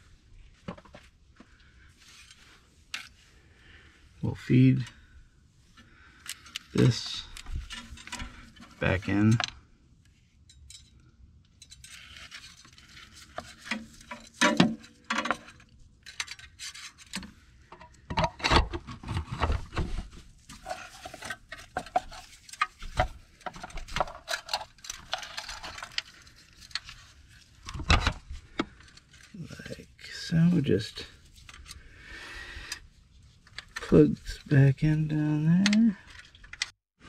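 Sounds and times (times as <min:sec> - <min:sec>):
metal tube clinking and scraping: 0:06.2 - 0:09.5, 0:10.4 - 0:18.4, 0:20.5 - 0:31.9.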